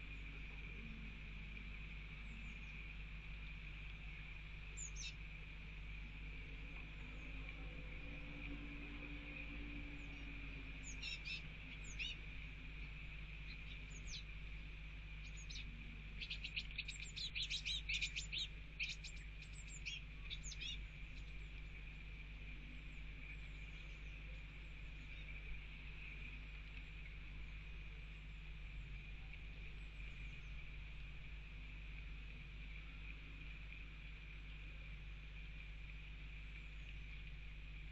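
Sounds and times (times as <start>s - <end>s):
bird fledglings begging chirps: 4.7s - 5.2s, 9.3s - 14.4s, 15.0s - 21.8s.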